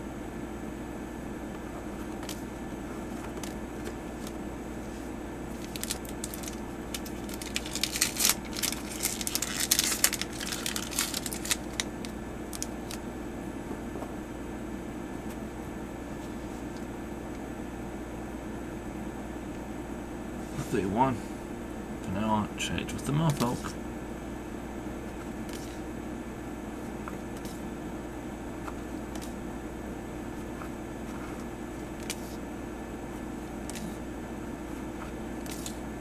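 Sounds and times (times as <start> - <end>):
steady background hum: 0.0 - 36.0
cards rustling and clicking: 2.1 - 2.4, 3.0 - 4.4, 5.5 - 13.0, 23.2 - 23.6, 30.6 - 32.4, 35.4 - 35.8.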